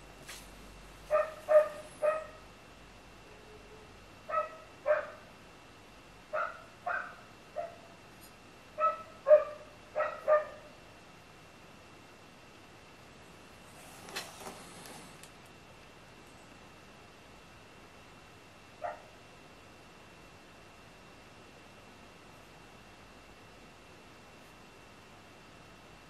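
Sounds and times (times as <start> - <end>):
dog barking: 1.1 - 2.4, 4.3 - 5.2, 6.3 - 7.9, 8.8 - 10.7, 18.8 - 19.2.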